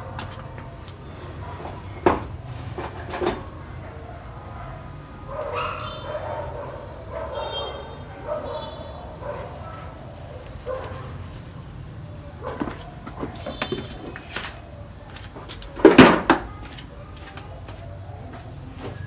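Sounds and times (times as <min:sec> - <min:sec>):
loud bang: 0:02.0 - 0:03.8
hard objects knocking and clattering: 0:15.8 - 0:16.5.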